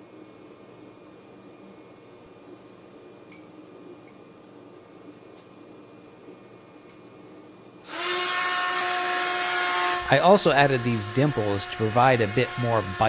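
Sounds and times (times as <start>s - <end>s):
rotary tool whining: 7.9s - 13.0s.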